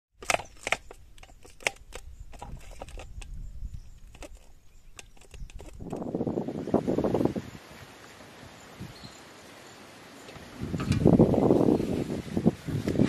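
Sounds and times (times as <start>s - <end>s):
sharp clicks and ticks: 0.1s - 6.1s
low wind rumble on microphone: 2.0s - 7.9s, 8.5s - 9.2s, 10.4s - 13.0s.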